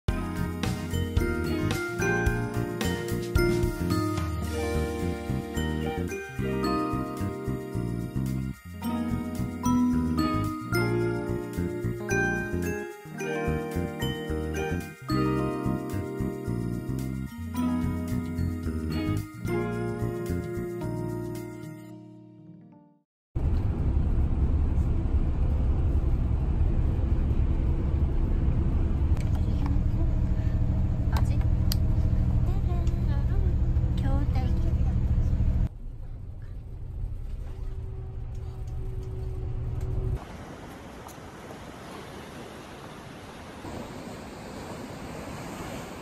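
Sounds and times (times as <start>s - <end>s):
background music with light melody: 0.1s - 23.0s
bus engine and road rumble: 23.4s - 46.0s.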